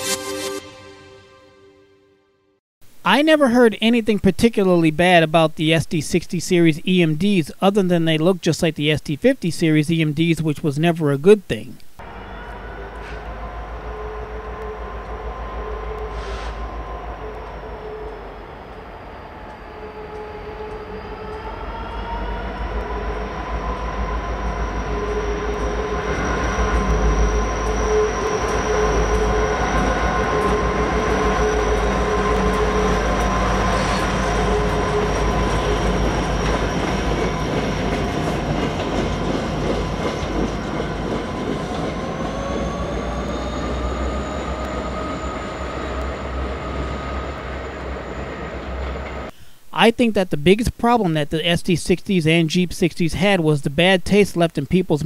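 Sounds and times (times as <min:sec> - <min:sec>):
train wheel squeal: 0:12.1 - 0:49.3.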